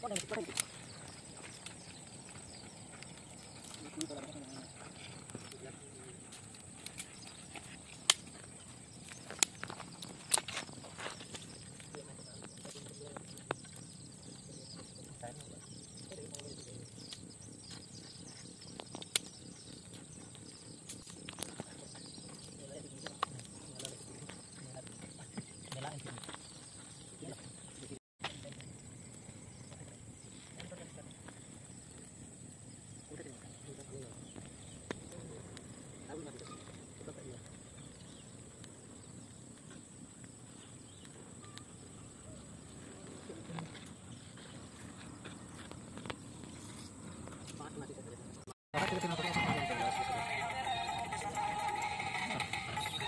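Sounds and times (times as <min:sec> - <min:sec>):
twig fire crackling and popping: 0:00.0 - 0:53.0
high-pitched insect drone: 0:49.0 - 0:53.0.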